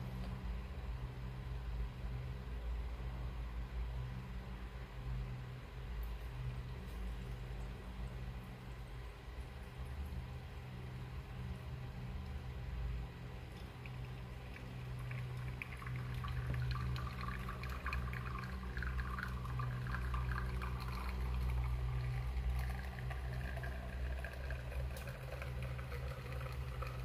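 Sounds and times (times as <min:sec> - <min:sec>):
steady low hum: 0:00.0 - 0:27.0
espresso trickling into glasses: 0:13.5 - 0:27.0.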